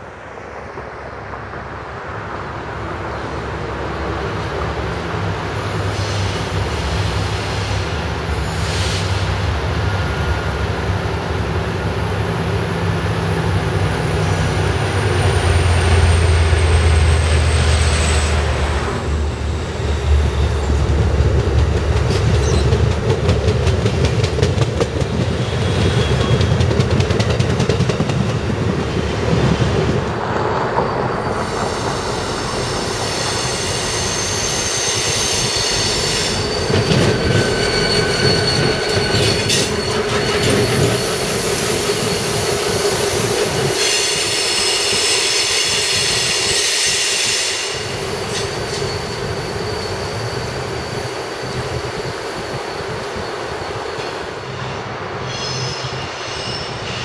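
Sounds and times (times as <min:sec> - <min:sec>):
passenger train rumbling past: 0:00.0 - 0:57.0
steel wheels squealing: 0:14.0 - 0:18.6, 0:22.1 - 0:22.9, 0:25.2 - 0:26.7, 0:30.8 - 0:57.0.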